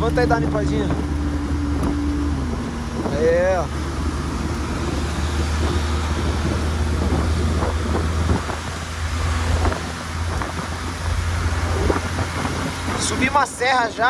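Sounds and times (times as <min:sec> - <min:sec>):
low car engine drone: 0:00.0 - 0:14.0
road noise: 0:00.0 - 0:14.0
wind: 0:00.0 - 0:14.0.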